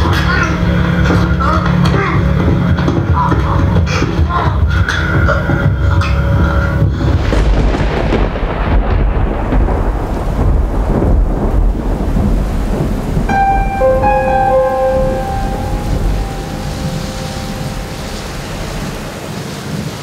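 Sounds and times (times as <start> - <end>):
steady rain: 0.0 - 20.0
thunder rumbling: 0.0 - 20.0
eerie held tones: 13.3 - 19.6.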